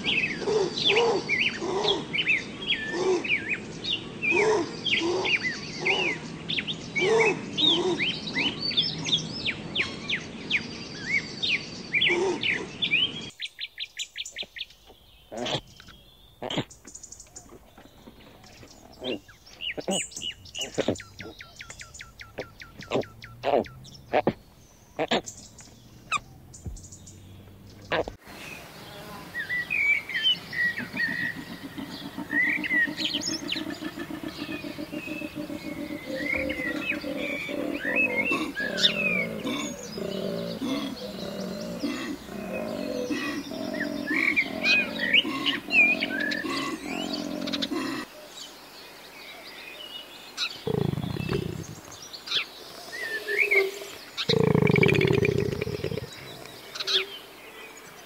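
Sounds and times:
birds chirping: 0.0s - 58.0s
koala bellowing: 30.5s - 48.1s, 50.6s - 51.9s
low grunts: 36.1s - 48.1s, 50.6s - 51.9s, 54.3s - 56.7s.

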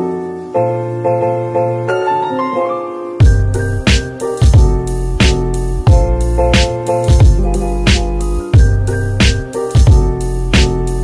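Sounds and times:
piano chords: 0.0s - 11.0s
deep bass: 3.2s - 3.9s, 4.6s - 11.0s
steady drum beat: 3.2s - 11.0s.

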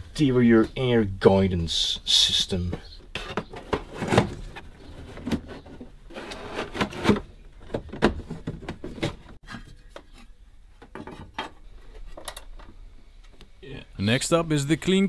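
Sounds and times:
plastic rubbing and scraping: 3.1s - 12.3s.

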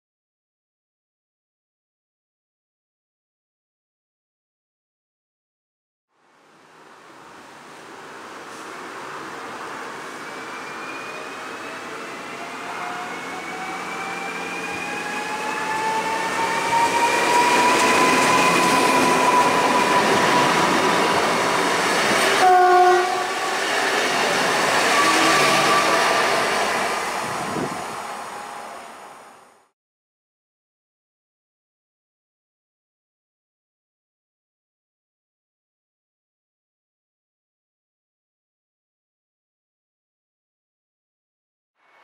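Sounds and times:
train horn blast: 22.4s - 23.6s.

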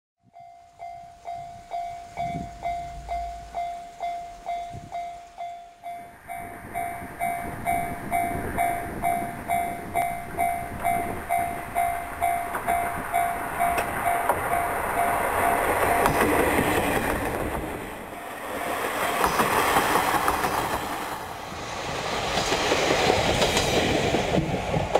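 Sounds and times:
level crossing warning bell: 0.2s - 17.0s
train rumbling: 0.3s - 24.9s.

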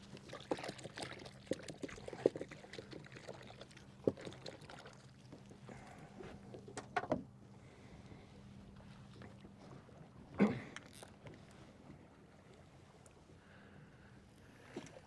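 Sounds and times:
water sounds: 0.0s - 6.8s
low steady hum: 0.0s - 15.0s.

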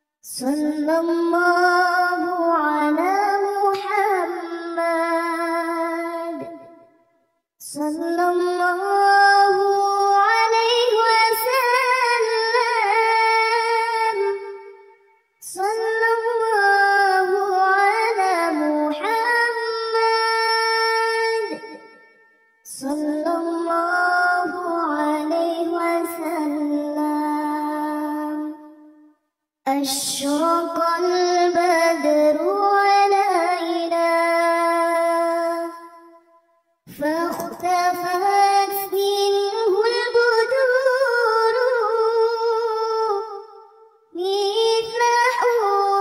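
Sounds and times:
child-like voice singing: 36.9s - 42.8s.

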